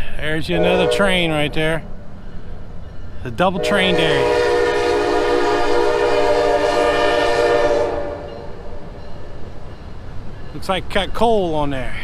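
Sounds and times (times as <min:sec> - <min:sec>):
train rolling rumble: 0:00.0 - 0:12.0
locomotive horn blast: 0:00.4 - 0:01.6, 0:03.5 - 0:08.6.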